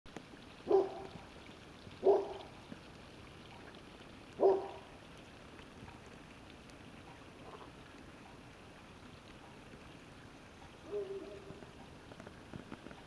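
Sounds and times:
dog barking: 0.7s - 1.2s, 2.0s - 2.5s, 4.4s - 4.8s, 10.9s - 11.6s.

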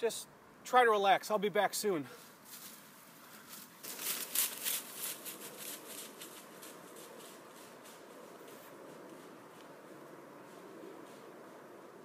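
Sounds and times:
footsteps crunching through dry leaves: 2.2s - 9.6s.

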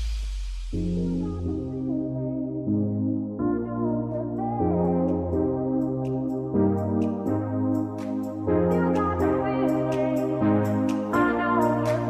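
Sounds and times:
soft keyboard and synthesizer chords: 0.7s - 12.0s
light ticking beat: 3.9s - 12.0s.

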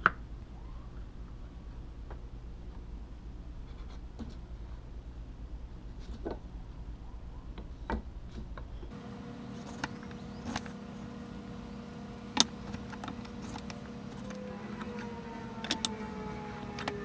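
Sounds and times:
low hum: 0.0s - 17.0s
hand tools clicking and tapping: 12.2s - 17.0s.

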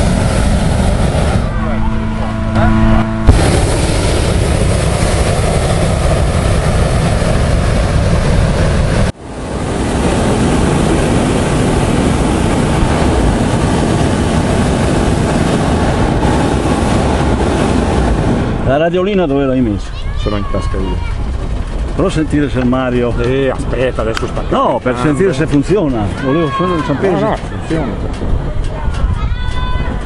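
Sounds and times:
loud even rushing noise: 0.0s - 26.2s
inflator fan running: 0.0s - 28.5s.

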